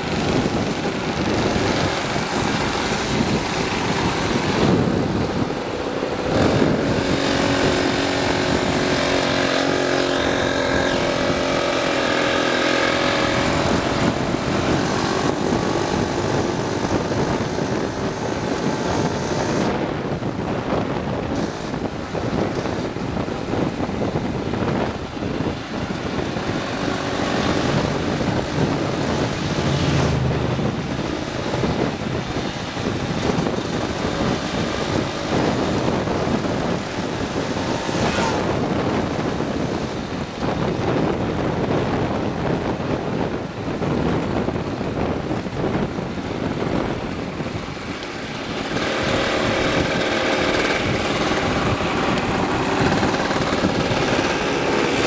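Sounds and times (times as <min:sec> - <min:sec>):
two-stroke moped engines: 0:00.0 - 0:55.0
wind buffeting microphone: 0:00.0 - 0:55.0.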